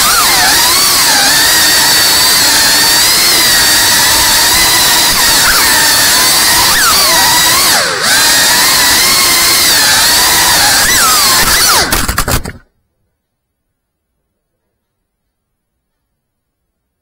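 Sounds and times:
drone motors whining: 0.0 - 12.7.

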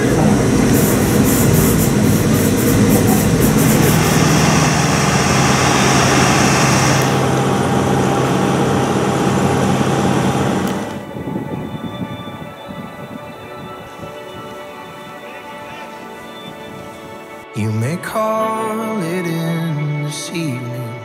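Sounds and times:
turboprop engines droning: 0.0 - 14.0.

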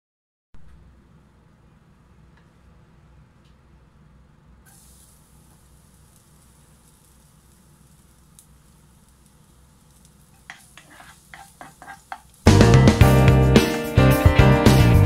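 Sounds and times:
garlic sizzling in oil: 4.6 - 13.2
spatula scraping pan: 10.4 - 12.4.

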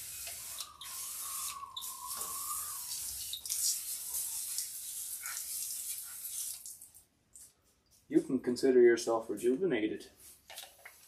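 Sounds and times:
spray hissing: 0.0 - 6.4.

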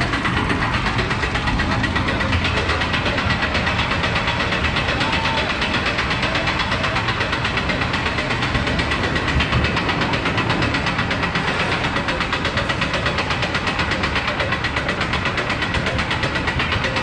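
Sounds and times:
fast lift chain clicks: 0.0 - 17.0
roller coaster chain lift rattle: 0.0 - 17.0.

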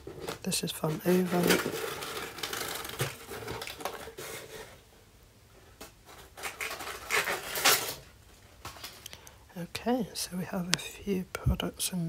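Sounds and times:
packing paper rustling: 0.0 - 4.8, 6.0 - 9.2.

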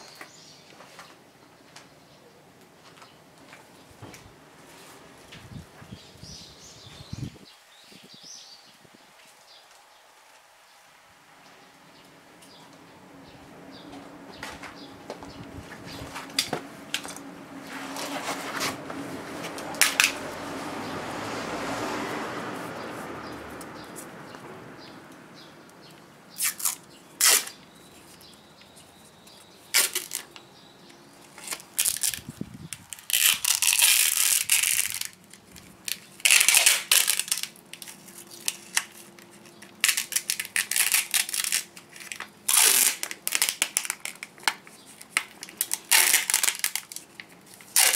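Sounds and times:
broad rushing noise: 12.9 - 27.6
tape ripping off roll: 15.9 - 20.2, 26.3 - 28.3, 29.7 - 30.4, 31.3 - 47.9.

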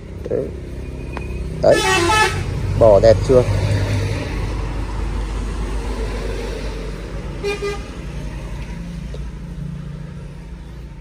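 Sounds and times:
vehicle engine rumble passing: 0.0 - 11.0
car horn double toot: 1.7 - 2.5.

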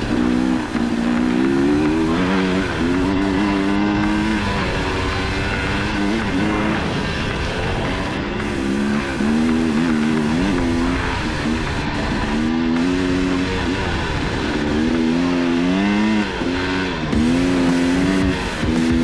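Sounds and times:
dirt bike engine revving: 0.0 - 19.0.

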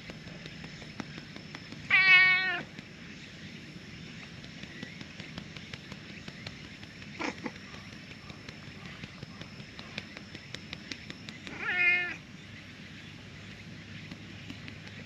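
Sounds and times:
outdoor background noise: 0.0 - 15.0
cat meowing loudly: 1.9 - 2.6, 11.6 - 12.2.

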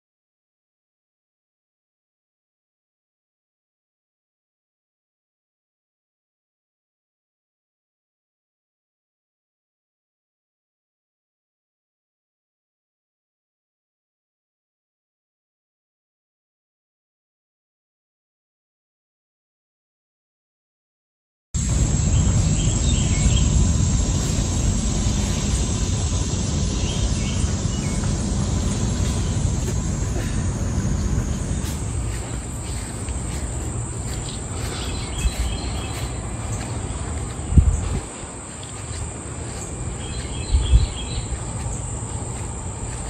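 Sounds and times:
high-pitched insect drone: 21.6 - 43.0
low rumble of noise: 21.6 - 43.0
faint chirps: 21.7 - 43.0.

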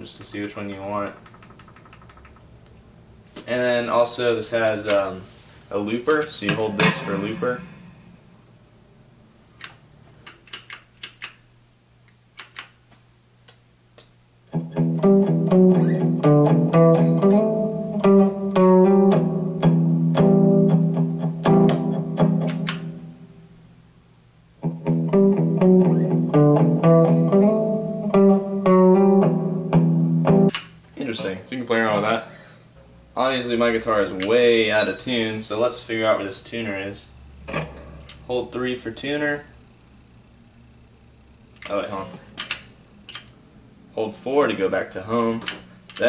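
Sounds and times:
faint clicks and plucked notes: 6.2 - 8.0
electric guitar riff: 6.4 - 8.4, 14.5 - 23.4, 24.6 - 30.5, 37.4 - 38.2.

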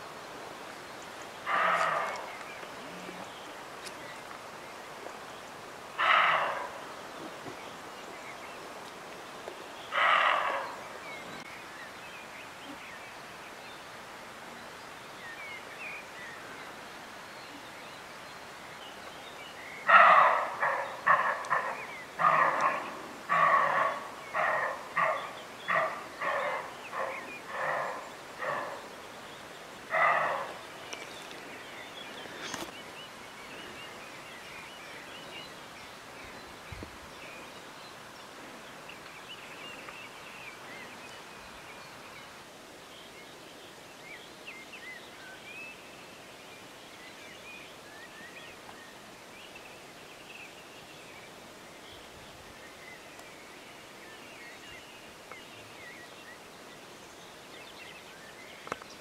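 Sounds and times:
deer barking: 1.5 - 2.2, 6.0 - 6.8, 9.9 - 10.8, 19.9 - 28.9, 29.9 - 30.6.

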